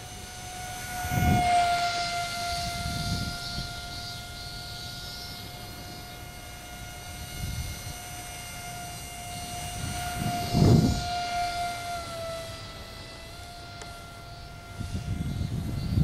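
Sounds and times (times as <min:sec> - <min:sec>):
low rumble of plane passing: 0:00.0 - 0:16.0
rc plane motor whine: 0:00.0 - 0:16.0.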